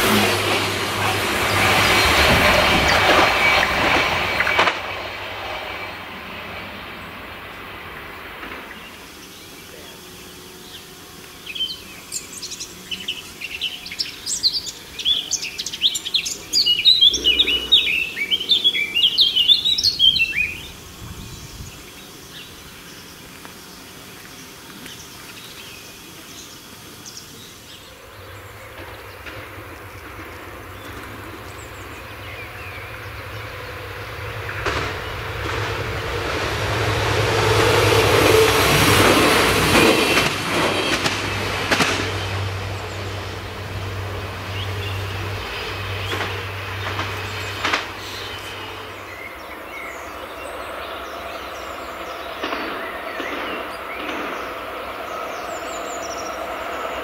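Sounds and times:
wheels on rails: 0.0s - 9.2s, 27.7s - 57.0s
diesel railcar engine hum: 0.0s - 57.0s
songbirds chirping: 1.0s - 39.0s, 39.7s - 57.0s.

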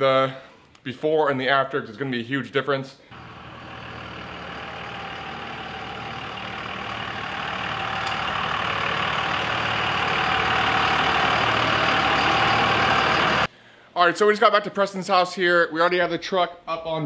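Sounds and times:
diesel truck approaching: 3.1s - 13.5s.

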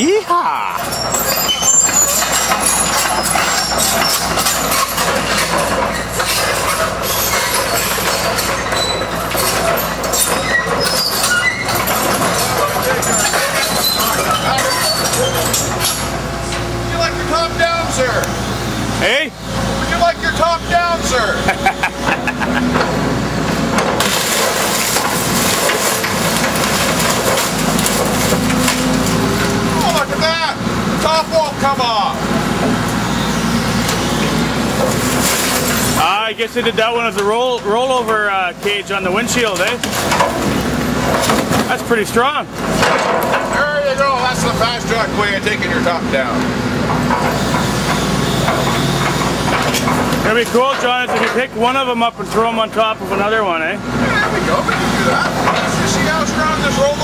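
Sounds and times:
excavator diesel engine under load: 0.0s - 57.0s
sheet metal bending and crunching: 0.0s - 57.0s
glass breaking: 0.7s - 16.2s, 23.8s - 30.4s, 34.7s - 37.4s.

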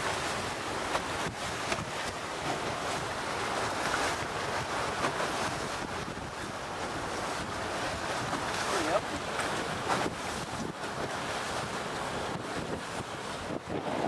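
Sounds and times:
choppy water slapping a hull: 0.0s - 14.0s
wind buffeting the microphone: 0.0s - 14.0s.

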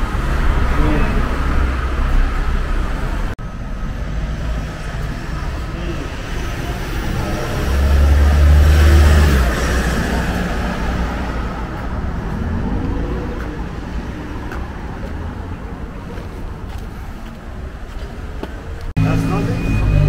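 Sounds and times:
road traffic noise: 0.0s - 20.0s
vehicle passing close by: 4.0s - 15.6s.

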